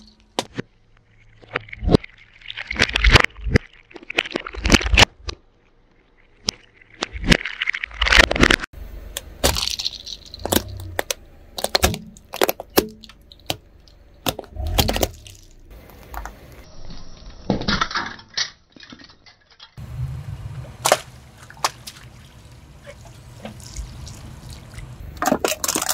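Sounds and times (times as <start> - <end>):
plastic cubes cracking under tyre: 6.4 - 19.3, 24.9 - 25.9
plastic pieces clinking on pavement: 9.1 - 16.4, 25.2 - 25.9.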